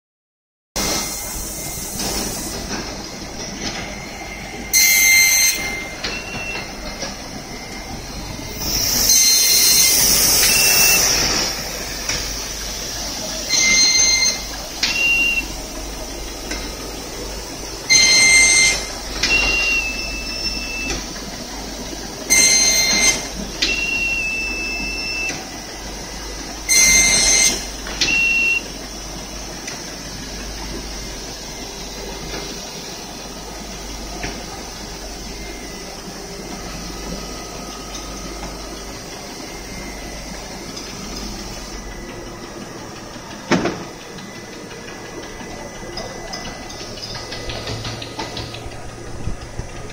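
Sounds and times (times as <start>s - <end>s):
binding machine running: 0.8s - 49.9s
short higher tone: 3.4s - 12.4s
loud high-pitched burst: 8.5s - 14.2s
hiss: 8.6s - 13.4s.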